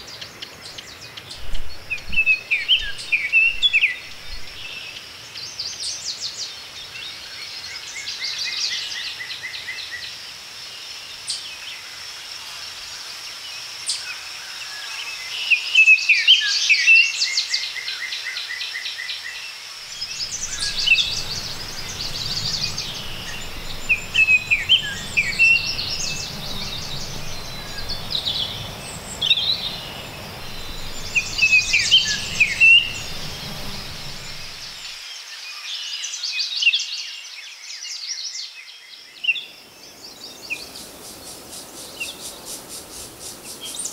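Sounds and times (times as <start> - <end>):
songbirds chirping and trilling: 0.0 - 7.9, 19.9 - 35.4
low rumble: 1.4 - 4.8, 19.9 - 35.0.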